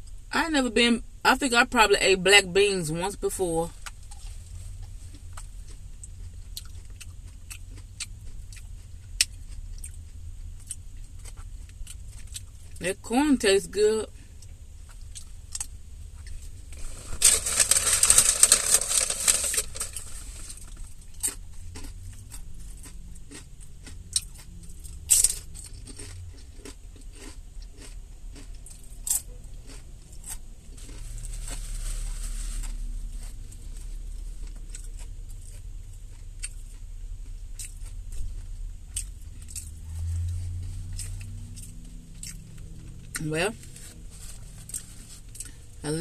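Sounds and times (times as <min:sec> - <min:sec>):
steady low rumble: 0:00.0 - 0:46.0
crunching chips: 0:14.9 - 0:33.8.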